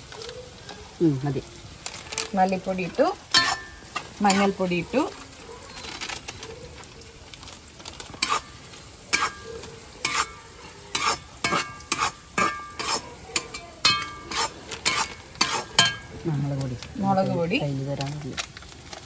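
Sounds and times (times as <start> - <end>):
low sizzle: 0.0 - 19.0
metal spoon scraping a pan: 2.8 - 6.4, 7.9 - 18.1
spoon clinking against pan: 3.3 - 4.6, 9.1 - 16.2.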